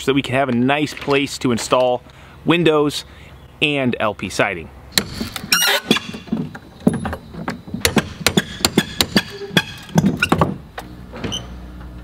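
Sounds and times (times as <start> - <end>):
hand tools knocking on wood: 5.9 - 10.6.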